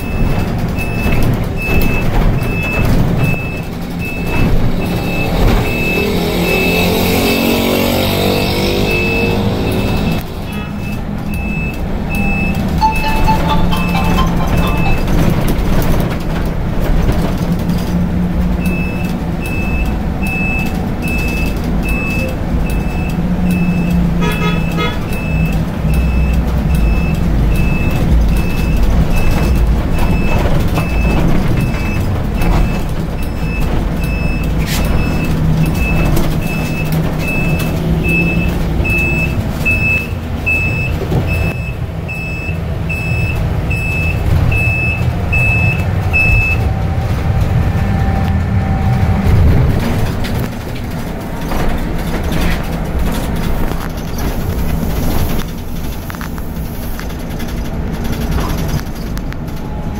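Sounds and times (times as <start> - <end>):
vehicle and road noise: 0.0 - 59.9
high electronic beeps: 12.2 - 15.7.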